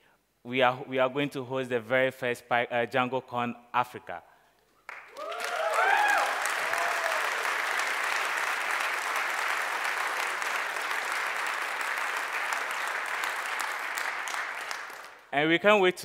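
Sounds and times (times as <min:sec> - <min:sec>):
audience applause: 0:04.9 - 0:15.3
audience cheers: 0:05.1 - 0:10.9.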